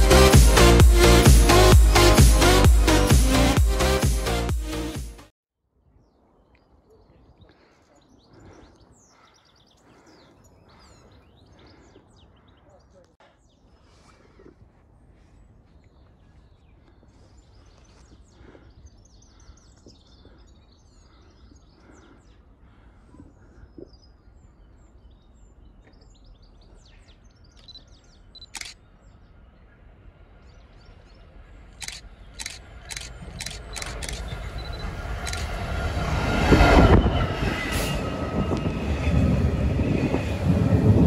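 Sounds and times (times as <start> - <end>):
small birds chirping: 6.0 - 35.5
sharp clicks: 28.4 - 28.8, 31.8 - 35.5
train rumble: 31.4 - 41.0.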